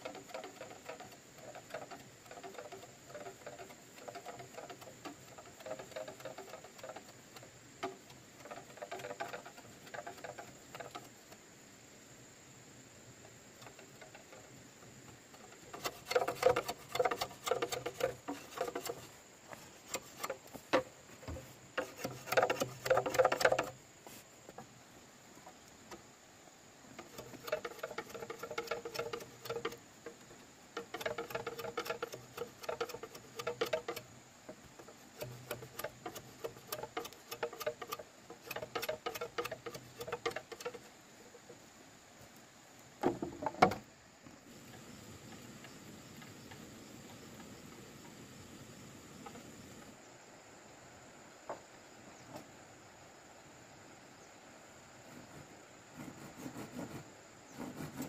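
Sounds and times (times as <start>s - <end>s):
hand tool scratching bamboo: 0.0s - 11.4s, 13.5s - 24.6s, 26.9s - 41.0s, 55.1s - 58.0s.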